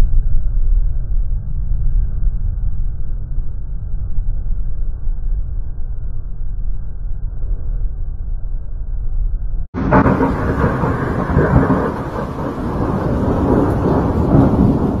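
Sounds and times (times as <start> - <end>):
thunder rumbling: 9.7 - 15.0.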